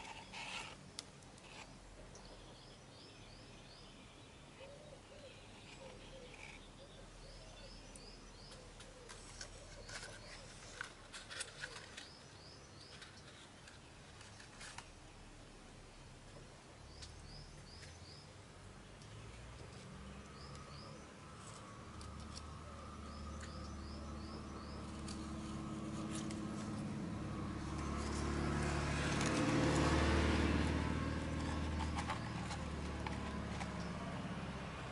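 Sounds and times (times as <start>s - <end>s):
small bird singing faintly: 0.0s - 28.8s
clicks and rustles of leaves: 7.9s - 15.2s, 18.9s - 34.9s.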